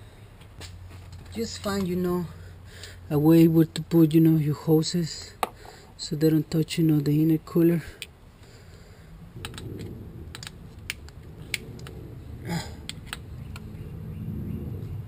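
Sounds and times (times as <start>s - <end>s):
low handling rumble: 8.2s - 15.0s.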